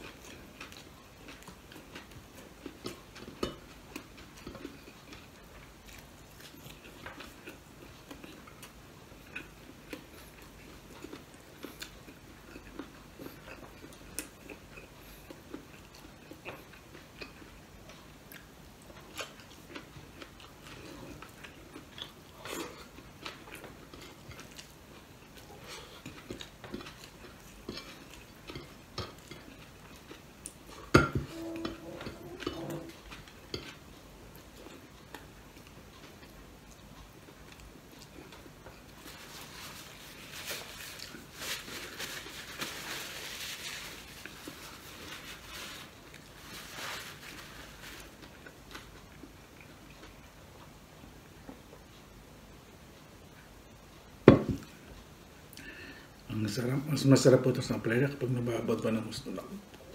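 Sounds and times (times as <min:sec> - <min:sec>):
soft eating sounds: 0:00.0 - 0:59.9
sharp knock on dish: 0:54.3 - 0:54.6.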